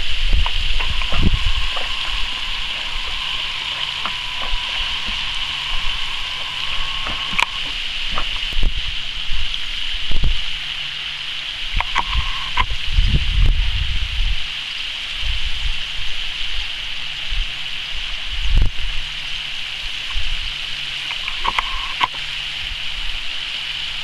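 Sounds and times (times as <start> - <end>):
dog swimming splashes: 0.0 - 9.8
steady watery hiss: 0.0 - 24.0.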